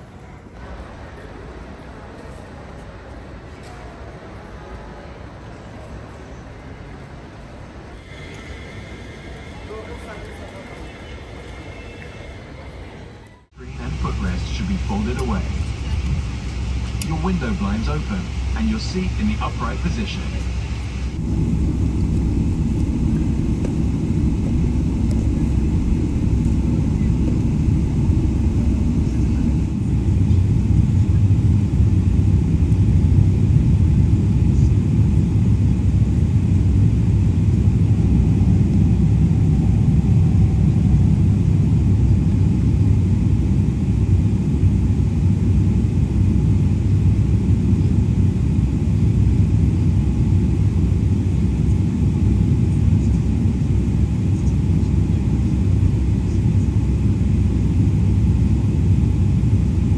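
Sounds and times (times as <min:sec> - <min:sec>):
airplane cabin engine rumble: 0:13.3 - 0:59.9.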